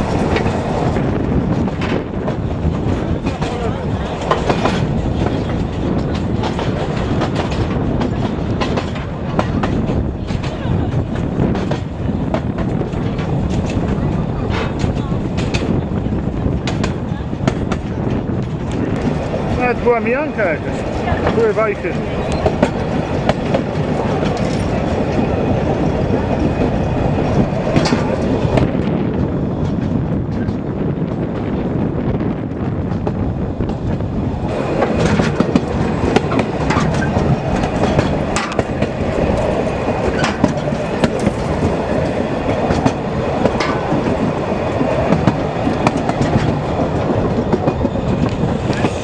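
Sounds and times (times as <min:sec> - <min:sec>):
wheels clicking over rail joints: 0:00.0 - 0:31.2, 0:32.9 - 0:49.0
railway carriage rumble: 0:00.0 - 0:49.0
clicks over rail joints: 0:34.8 - 0:44.2.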